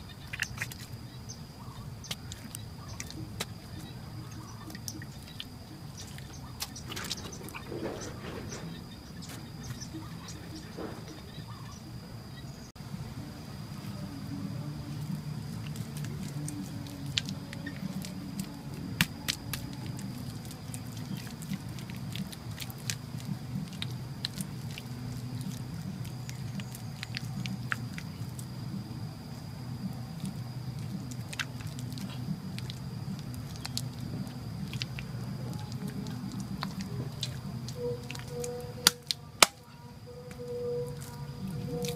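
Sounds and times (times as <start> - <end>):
faint high whine: 0.0 - 41.9
low hum: 0.0 - 41.9
hands slapping wet mud: 1.7 - 8.6, 15.0 - 28.5, 29.9 - 39.7.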